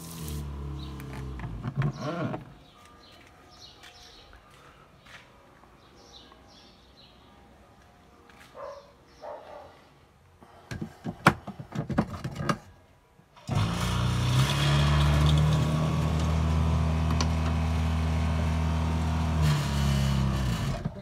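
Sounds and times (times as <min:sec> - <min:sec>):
water pump motor hum: 0:13.5 - 0:20.8.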